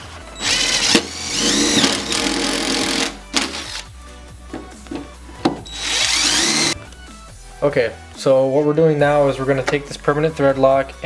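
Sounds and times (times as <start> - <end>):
cordless drill boring metal: 0.4 - 3.8, 5.7 - 6.8.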